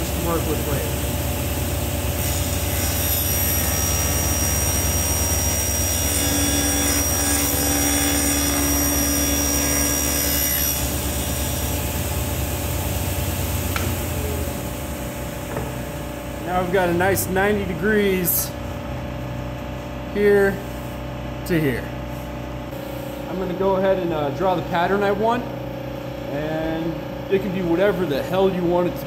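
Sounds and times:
table saw hum: 0:00.0 - 0:19.0
saw blade cutting wood: 0:02.2 - 0:11.7.

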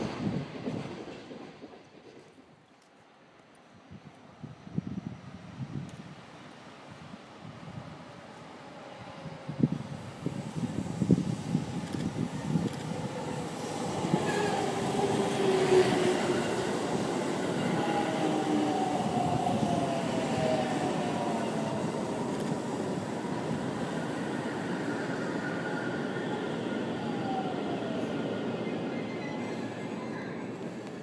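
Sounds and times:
wheels rumbling on rail: 0:07.7 - 0:31.0.

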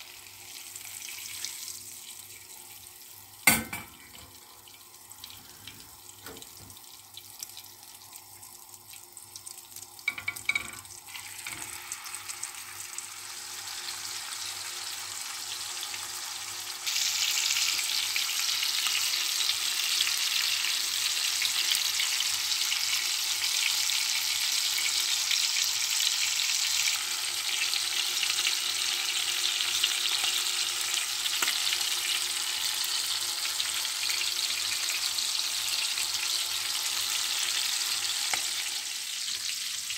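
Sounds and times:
butter sizzling: 0:00.0 - 0:39.9
steak sizzling loudly: 0:10.0 - 0:39.9.

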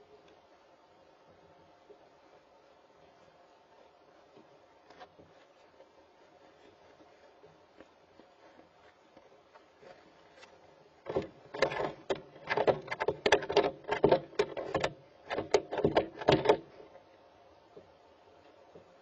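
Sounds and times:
owl flapping in wooden box: 0:11.0 - 0:16.8.

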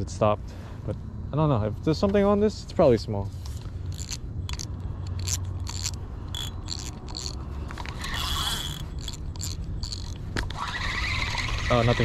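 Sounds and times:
low steady hum: 0:00.0 - 0:11.6
fishing reel clicking: 0:03.9 - 0:12.0.

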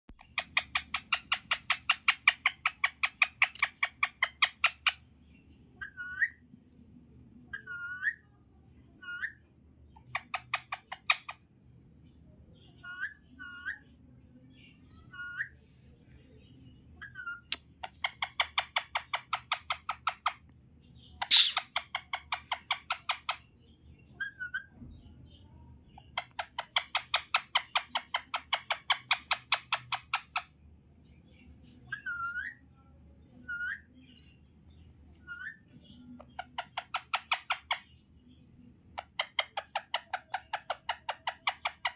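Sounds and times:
squeaky parakeet chirps: 0:00.2 - 0:05.1, 0:05.8 - 0:06.5, 0:07.5 - 0:08.4, 0:09.0 - 0:11.4, 0:12.6 - 0:14.0, 0:14.9 - 0:15.6, 0:16.9 - 0:20.4, 0:21.1 - 0:24.8, 0:25.9 - 0:30.6, 0:31.8 - 0:32.6, 0:33.3 - 0:34.2, 0:35.2 - 0:38.0, 0:38.9 - 0:41.9
parakeet chattering: 0:00.2 - 0:05.2, 0:05.8 - 0:06.4, 0:09.0 - 0:11.5, 0:16.9 - 0:24.8, 0:25.9 - 0:30.6, 0:35.2 - 0:38.0, 0:38.8 - 0:41.9.

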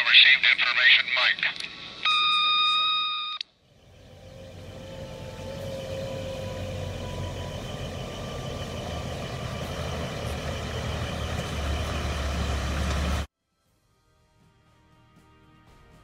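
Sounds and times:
vehicle engine rumble: 0:03.6 - 0:13.3.

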